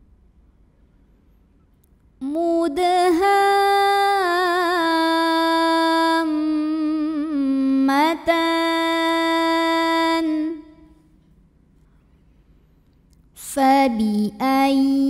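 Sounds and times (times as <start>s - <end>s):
person reciting in chant: 2.2s - 10.9s, 13.4s - 15.0s.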